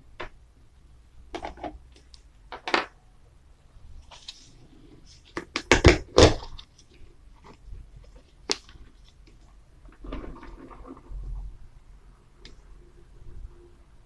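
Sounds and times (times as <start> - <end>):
plastic scraping and rustling: 4.0 - 11.7.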